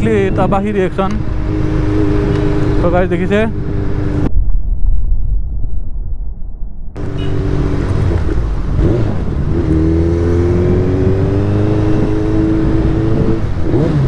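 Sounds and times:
motorcycle engine accelerating: 0:00.7 - 0:04.3, 0:07.0 - 0:14.0.

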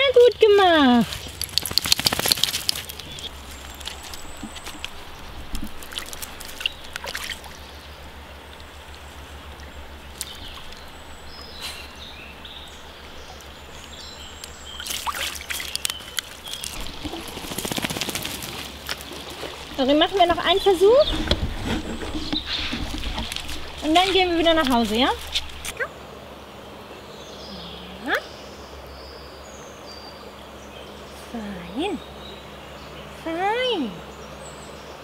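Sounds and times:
scuffing and splashing in water: 0:00.0 - 0:07.6, 0:14.7 - 0:25.8
creek water trickling: 0:00.0 - 0:35.0.

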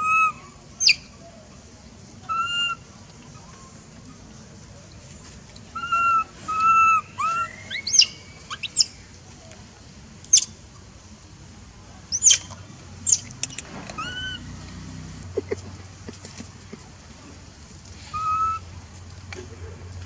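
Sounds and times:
low background noise: 0:00.0 - 0:20.0
short whistled calls: 0:05.8 - 0:09.0, 0:12.1 - 0:12.5.

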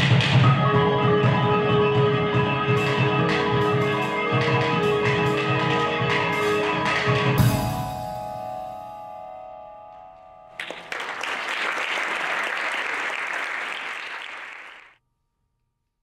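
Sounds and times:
percussion ensemble final chord: 0:07.4 - 0:09.2, 0:10.6 - 0:13.6
audience applause: 0:10.6 - 0:14.9.

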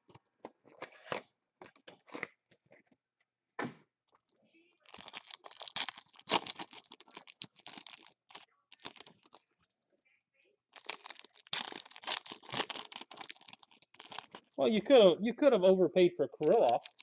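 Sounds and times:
foil wrappers crinkling: 0:04.8 - 0:09.4, 0:10.7 - 0:14.6, 0:16.4 - 0:17.0.

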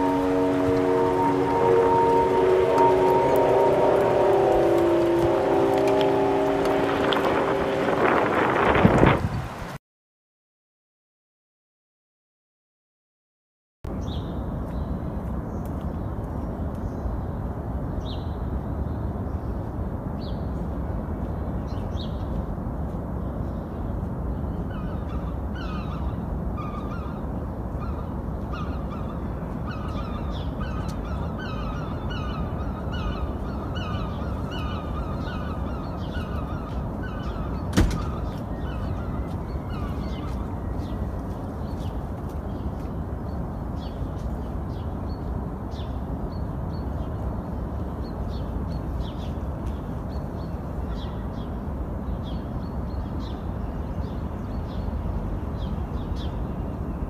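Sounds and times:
steady low rumble: 0:00.0 - 0:09.6
birds calling: 0:24.6 - 0:44.8.

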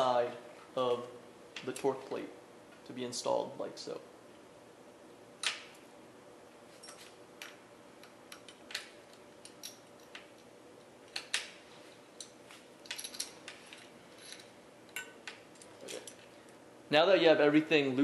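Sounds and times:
small metal parts clicking: 0:12.2 - 0:16.3.

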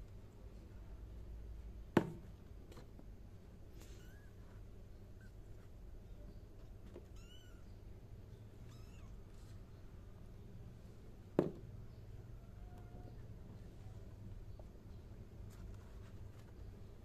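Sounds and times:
kittens mewing faintly: 0:03.7 - 0:04.5, 0:08.6 - 0:09.3.

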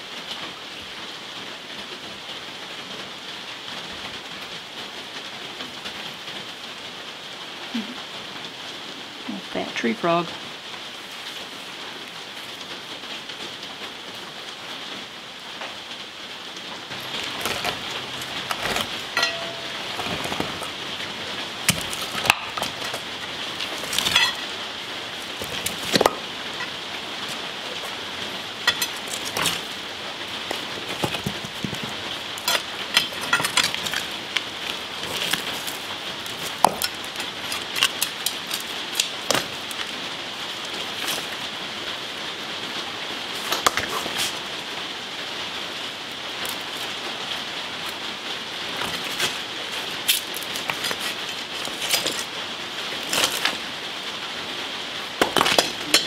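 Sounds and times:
steady hiss: 0:00.0 - 0:56.0
concrete chunks and pry bar clinking: 0:16.9 - 0:41.5, 0:43.4 - 0:44.4, 0:48.7 - 0:53.6, 0:55.2 - 0:56.0.

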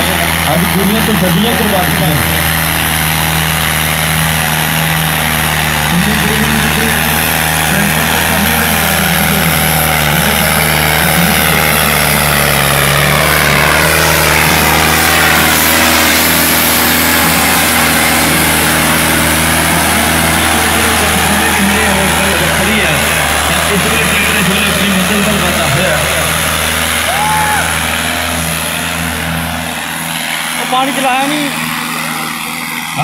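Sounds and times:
diesel tractor engine under load: 0:00.0 - 0:33.0
harrow dragging through dirt: 0:09.7 - 0:27.1.

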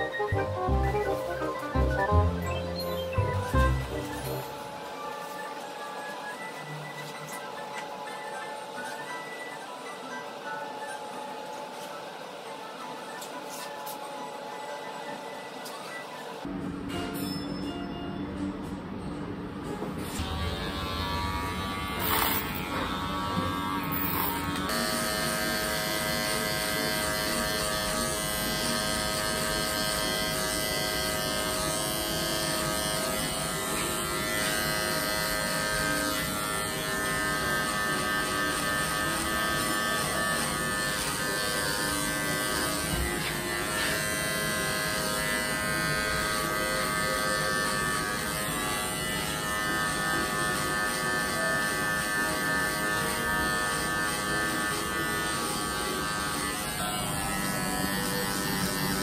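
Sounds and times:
electric hair clipper buzzing: 0:03.5 - 0:04.9, 0:20.0 - 0:59.0.

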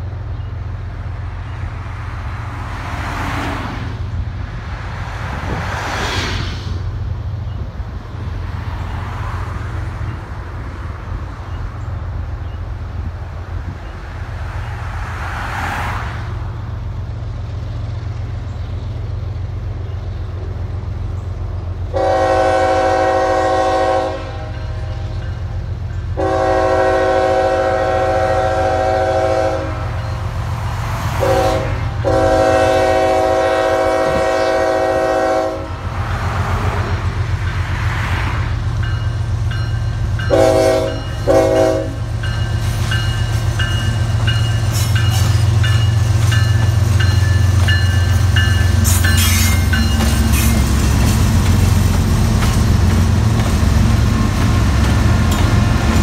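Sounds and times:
diesel locomotive engine rumble: 0:00.0 - 0:56.0
train air horn blasts: 0:21.9 - 0:25.2, 0:26.2 - 0:30.2, 0:31.1 - 0:35.9, 0:40.2 - 0:42.2.

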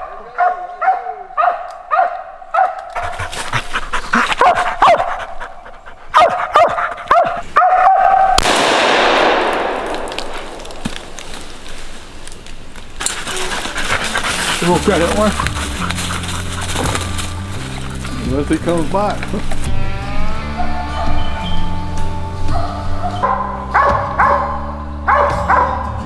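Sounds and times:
dog barking: 0:00.0 - 0:03.3, 0:04.2 - 0:05.3, 0:06.1 - 0:08.4, 0:20.5 - 0:21.2, 0:22.5 - 0:26.0.

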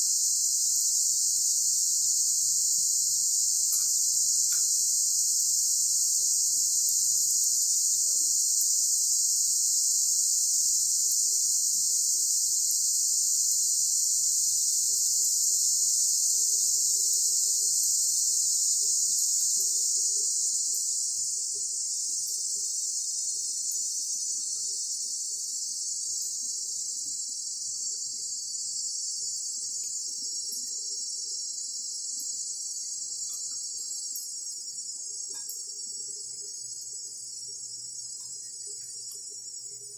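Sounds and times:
crickets chirring: 0:00.0 - 0:39.9.

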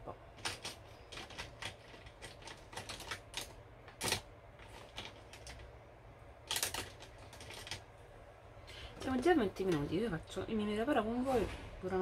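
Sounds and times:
makeup items clicking and tapping: 0:00.1 - 0:05.7.

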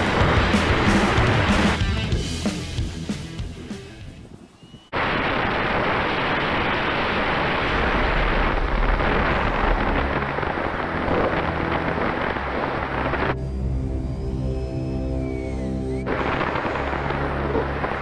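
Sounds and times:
music: 0:00.0 - 0:04.4, 0:09.6 - 0:18.0.

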